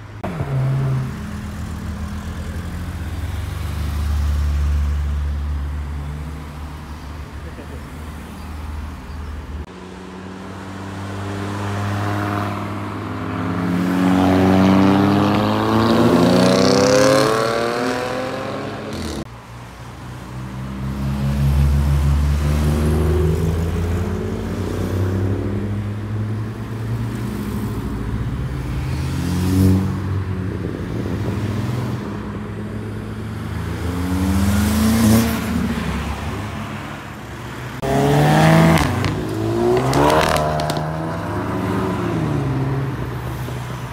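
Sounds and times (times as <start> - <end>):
cars accelerating past: 9.7 - 19.3, 20.4 - 26.0, 28.5 - 43.9.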